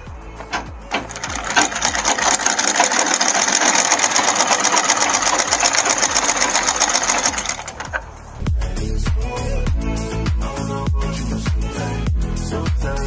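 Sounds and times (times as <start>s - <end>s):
sewing machine stitching: 0.4s - 8.1s.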